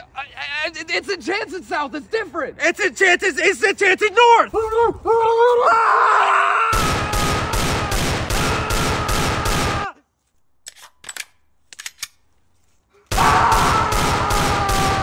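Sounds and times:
man yelling: 0:02.7 - 0:07.4
rapid pistol shots: 0:06.8 - 0:09.9, 0:13.1 - 0:15.0.

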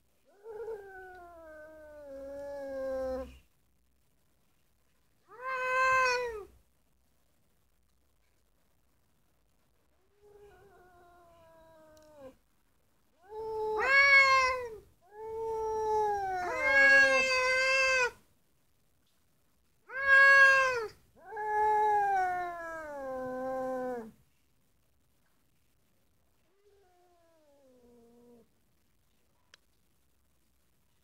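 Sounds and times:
cats yowling: 0:00.3 - 0:03.4, 0:05.3 - 0:06.5, 0:13.2 - 0:18.2, 0:19.9 - 0:24.1.

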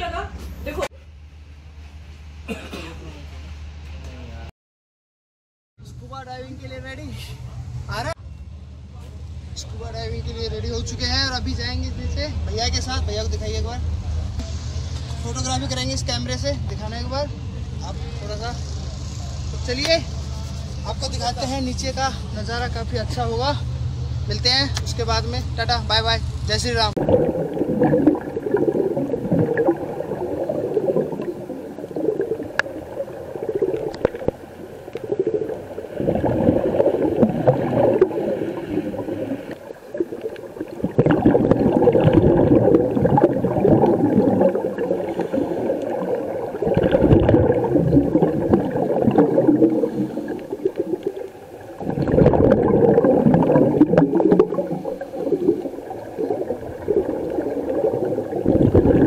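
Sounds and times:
regulator bubbles gurgling underwater: 0:27.0 - 0:59.0.

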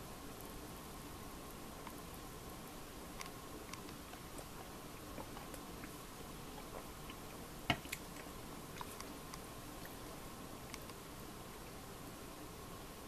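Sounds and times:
faint steady hiss: 0:00.0 - 0:13.0
light ticks and clicks: 0:03.2 - 0:04.5, 0:07.1 - 0:11.3.

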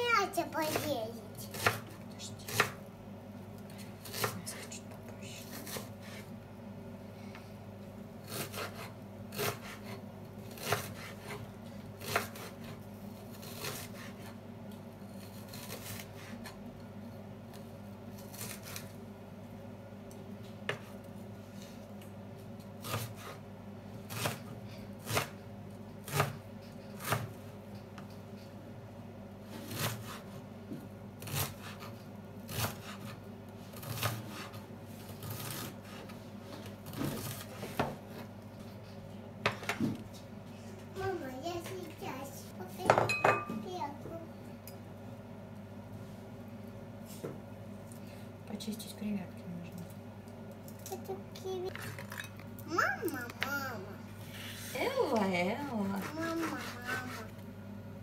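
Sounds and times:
knife chopping on wooden board: 0:01.5 - 0:02.8, 0:08.3 - 0:12.8, 0:27.0 - 0:27.3.

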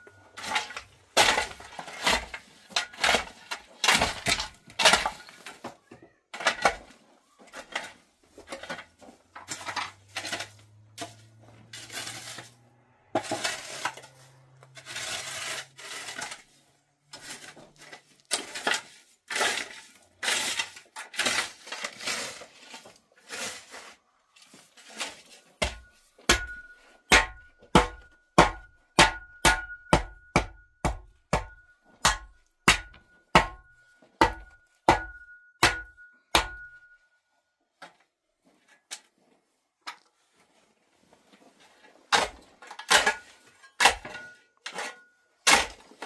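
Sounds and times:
scraping and rubbing strokes: 0:09.5 - 0:26.1
faint steady ringing tone: 0:31.5 - 0:37.7.

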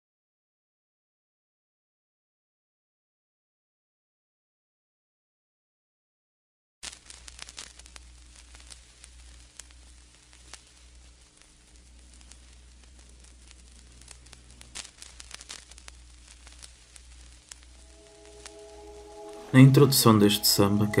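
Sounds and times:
vinyl crackle with clicks and pops: 0:06.8 - 0:21.0
low hum: 0:15.9 - 0:21.0.

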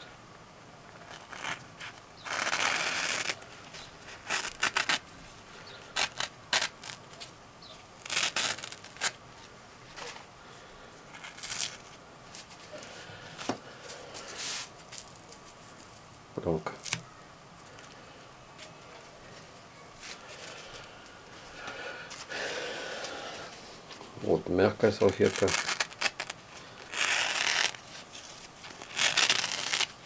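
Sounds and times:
paper napkin rustling: 0:24.8 - 0:30.0.

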